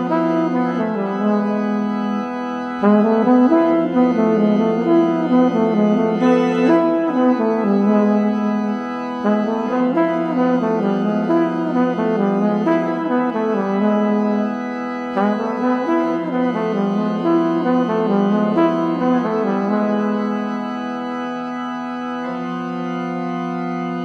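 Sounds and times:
pipe organ chords: 0.0s - 24.0s
trumpet melody: 5.2s - 8.2s.

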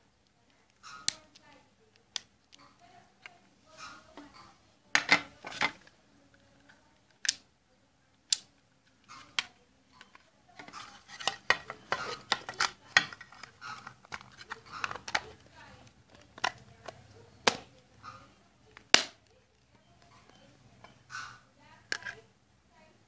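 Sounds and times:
small clicks and scraping: 0.2s - 7.4s, 8.3s - 22.3s
plastic case clicks: 9.3s - 15.4s, 16.1s - 17.7s.

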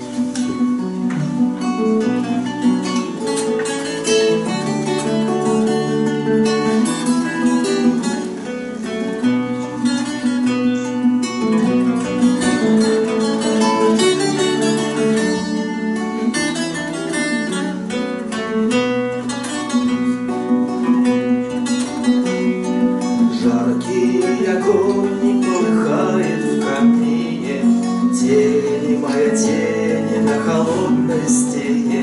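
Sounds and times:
acoustic guitars strumming: 0.0s - 32.0s
person singing: 22.2s - 32.0s.

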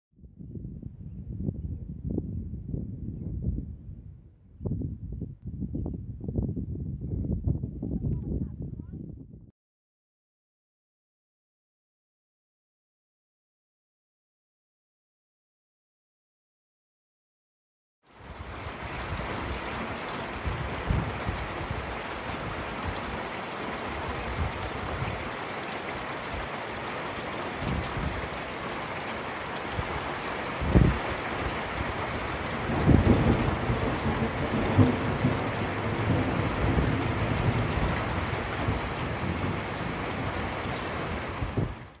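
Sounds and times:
rain hiss: 18.1s - 42.0s
thunder rumbling: 30.6s - 41.8s
sharp thunderclap: 32.5s - 39.8s.

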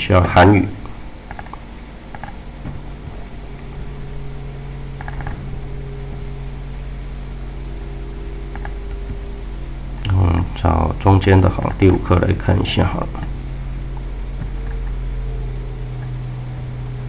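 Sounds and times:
steady low hum: 0.0s - 17.0s
computer mouse clicks: 1.3s - 2.8s, 5.0s - 5.4s, 8.5s - 8.9s, 11.6s - 12.0s.

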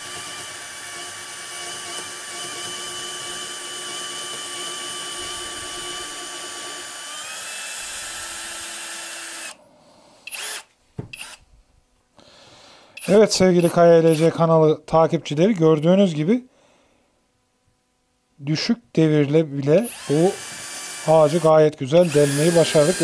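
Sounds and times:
drill boring through wood: 0.0s - 9.6s, 10.3s - 11.4s, 13.0s - 14.3s, 19.8s - 23.0s.

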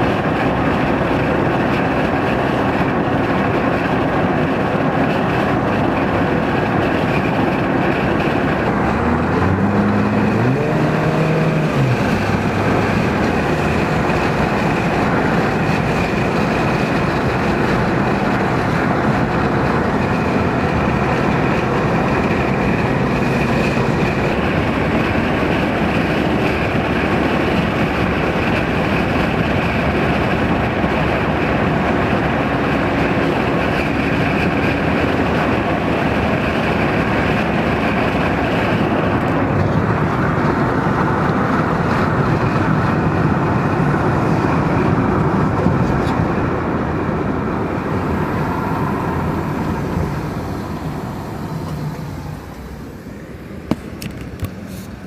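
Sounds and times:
car interior driving noise: 0.0s - 55.0s.

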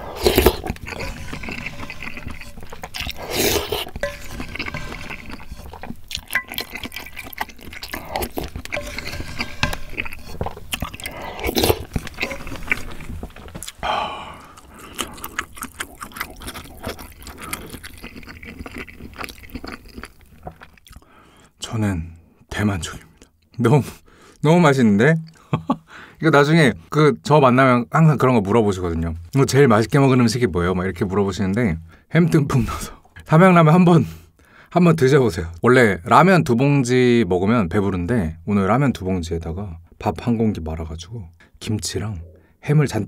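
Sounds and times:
wooden spoon scraping a pan: 0.0s - 13.4s.

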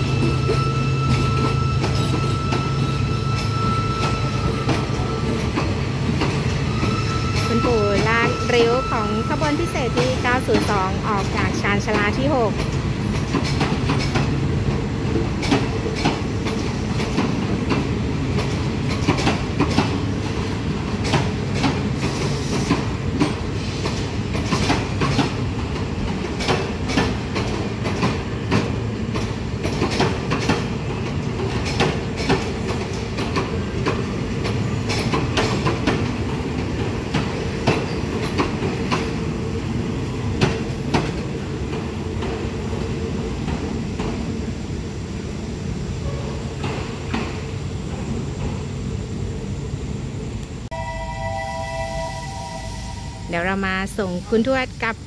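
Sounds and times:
train rumbling: 0.0s - 55.0s
wheels clacking over rail joints: 9.9s - 39.3s.

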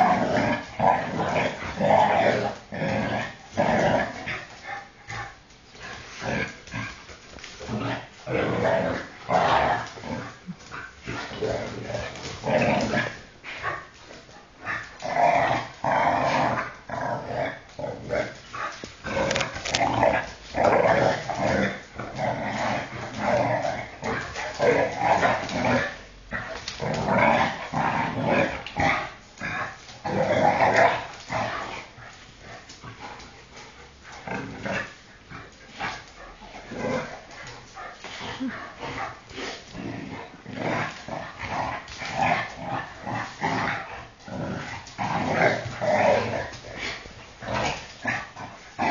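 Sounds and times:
dogs growling: 0.0s - 48.9s.

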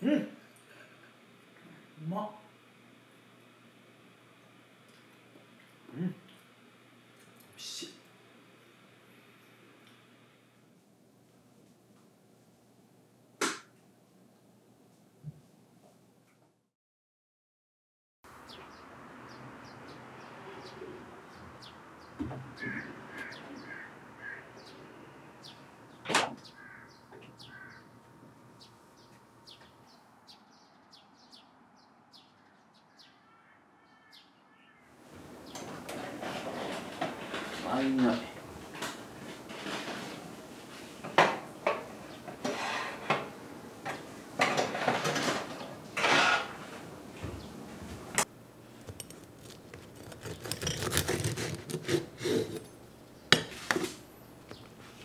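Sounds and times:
birds chirping: 18.3s - 35.8s, 54.1s - 54.9s
lower bird calls: 18.5s - 34.9s
metal rack clanking and scraping: 44.4s - 46.7s.

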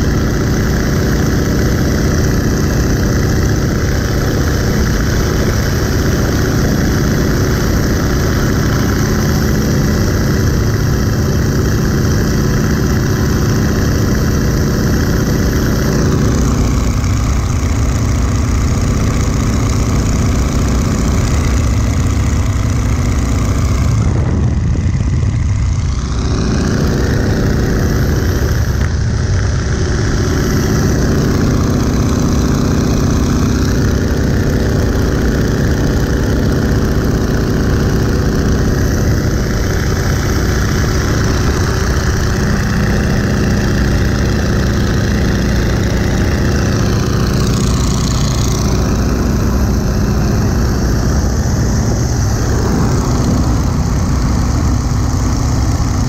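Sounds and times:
propeller plane engine drone: 0.0s - 56.0s
wind rushing: 49.9s - 56.0s.

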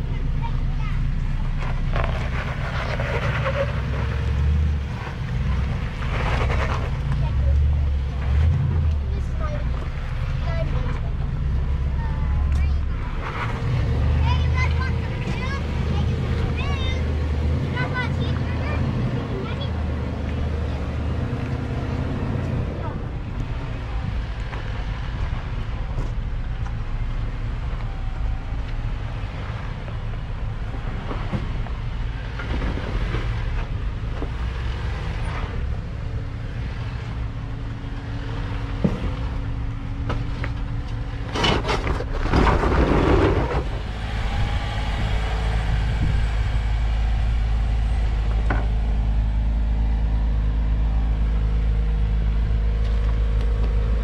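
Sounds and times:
vehicle engine low rumble: 0.0s - 54.0s
tyres grinding over rock: 38.7s - 46.4s.

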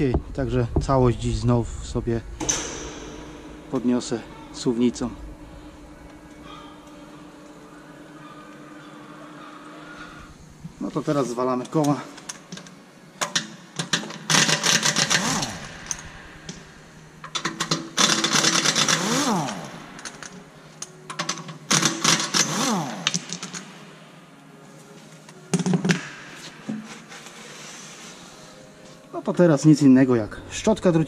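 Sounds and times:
impact wrench rattling: 13.2s - 16.6s, 17.2s - 20.4s, 21.1s - 23.6s.

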